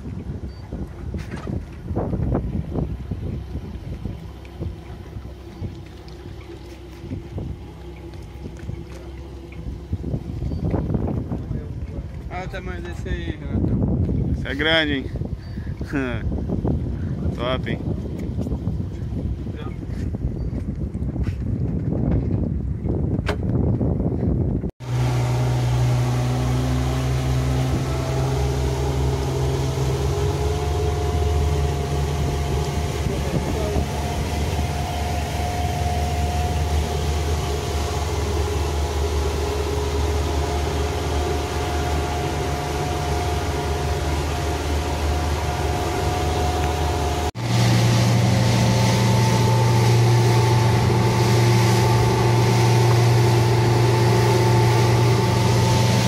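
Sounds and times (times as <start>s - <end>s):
water rushing from wake: 0.0s - 13.4s, 24.8s - 56.0s
boat engine running: 0.0s - 56.0s.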